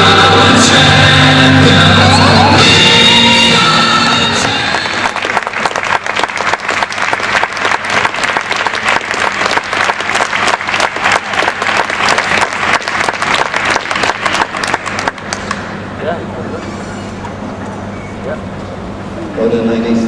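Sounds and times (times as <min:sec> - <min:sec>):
crowd applauding: 0:04.3 - 0:15.6.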